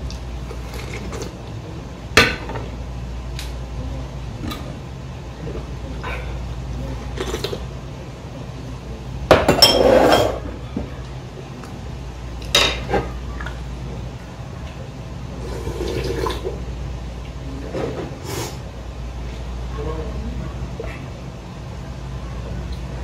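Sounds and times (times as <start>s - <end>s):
slurping broth: 15.4s - 16.4s.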